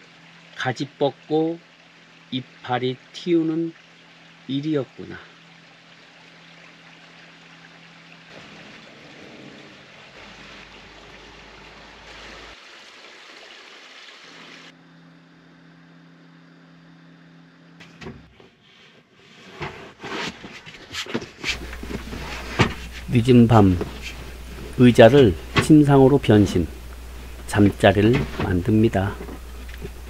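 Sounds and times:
rain hissing: 0:08.3 - 0:14.7, 0:21.5 - 0:30.0
low even hum: 0:14.7 - 0:18.5, 0:21.4 - 0:30.0.

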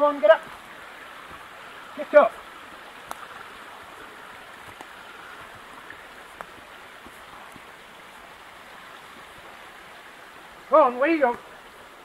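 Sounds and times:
stream running: 0:00.0 - 0:12.0
faint clicks: 0:03.0 - 0:03.3.

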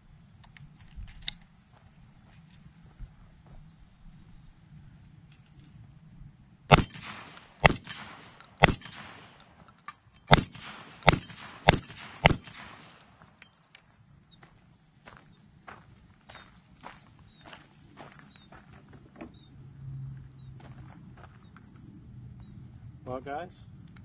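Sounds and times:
shotgun shots with echo: 0:06.7 - 0:09.6, 0:10.3 - 0:13.4.

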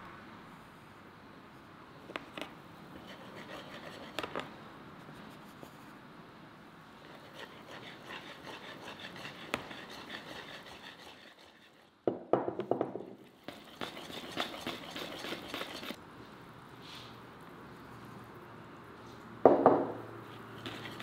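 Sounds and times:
wire whisk stirring in bowl: 0:07.1 - 0:11.9, 0:13.3 - 0:16.0.

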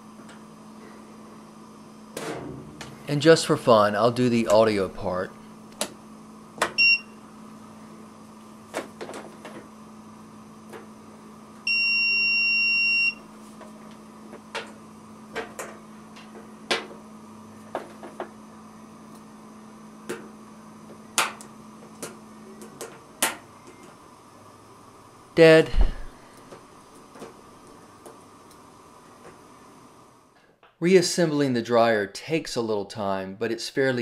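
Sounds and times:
multimeter beeping: 0:06.8 - 0:07.2, 0:11.6 - 0:13.3.

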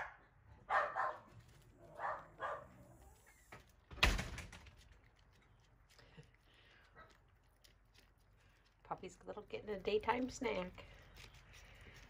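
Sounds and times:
puppies barking: 0:00.0 - 0:03.0.

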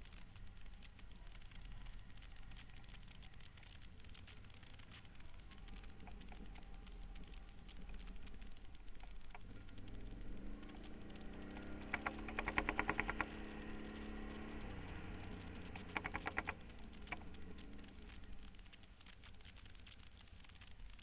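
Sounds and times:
rapid even clicking rattle: 0:00.0 - 0:21.0
quad bike engine revving: 0:09.4 - 0:17.9.

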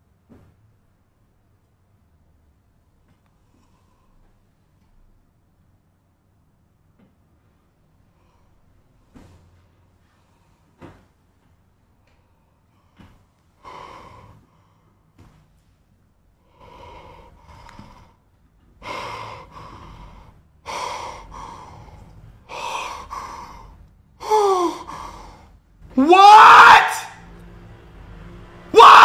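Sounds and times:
man gasping: 0:18.8 - 0:26.3.

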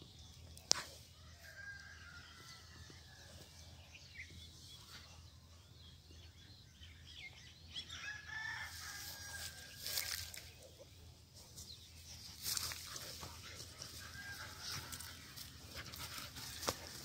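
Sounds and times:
rooster crowing: 0:07.9 - 0:09.9.

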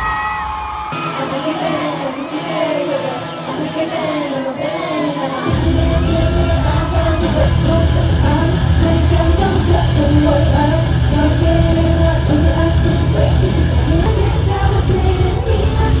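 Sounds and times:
live concert music: 0:00.0 - 0:16.0
person singing: 0:01.0 - 0:16.0
heavy steady bass: 0:05.5 - 0:16.0.

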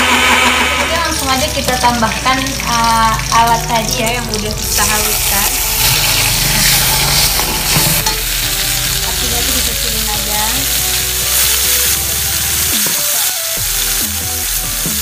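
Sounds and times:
paste sizzling in hot oil: 0:00.0 - 0:15.0
metal ladle stirring in wok: 0:04.6 - 0:08.8.

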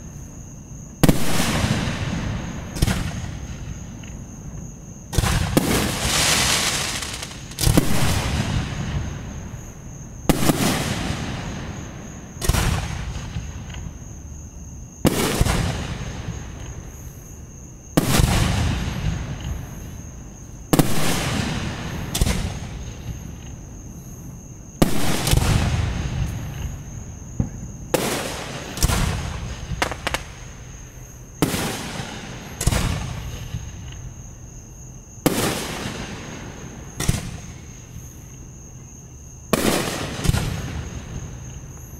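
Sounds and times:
fireworks bursting with echo: 0:01.0 - 0:03.8, 0:05.1 - 0:09.4, 0:27.4 - 0:30.7, 0:31.4 - 0:33.9, 0:39.5 - 0:41.2.

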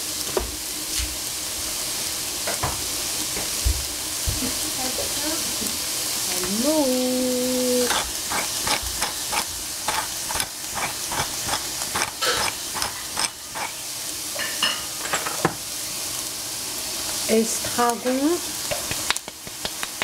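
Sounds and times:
meat sizzling in frying pan: 0:00.0 - 0:20.0
pepper grinder clicking: 0:07.9 - 0:13.8.

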